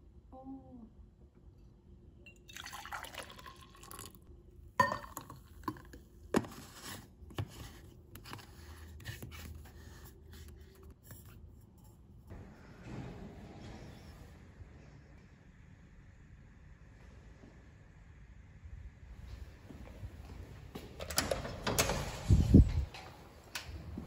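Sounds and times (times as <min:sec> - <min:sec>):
espresso pouring: 0:02.3 - 0:04.3.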